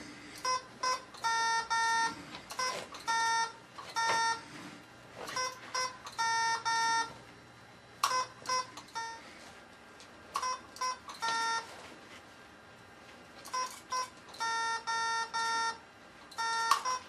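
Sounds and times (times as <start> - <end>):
morse code beeps: 0.4 - 4.5, 5.2 - 7.2, 8.0 - 9.3, 10.4 - 11.8, 13.5 - 15.8, 16.4 - 17.0.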